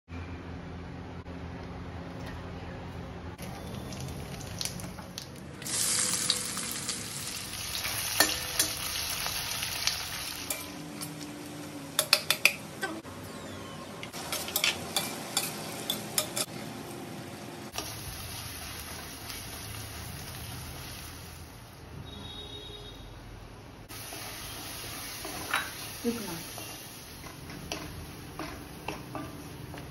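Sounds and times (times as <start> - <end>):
spices and onions sizzling in oil: 3.4 - 13.0, 14.1 - 21.8, 23.9 - 29.9.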